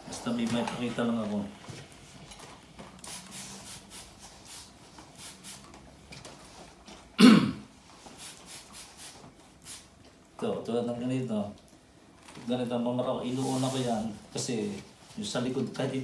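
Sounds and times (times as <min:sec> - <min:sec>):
man coughing: 0:07.2 - 0:07.7
faint soft rustling: 0:11.4 - 0:16.0.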